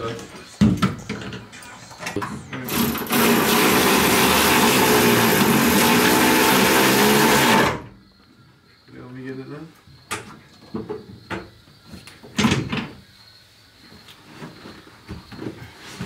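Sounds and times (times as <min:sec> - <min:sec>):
power driver running: 0:02.6 - 0:07.9.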